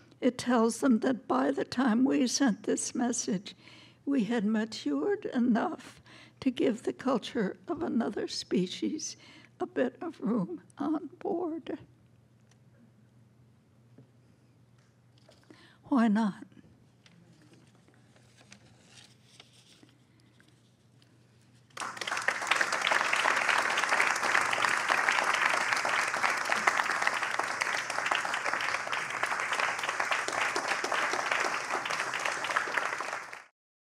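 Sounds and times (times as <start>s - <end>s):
audience applause: 21.8s - 33.5s.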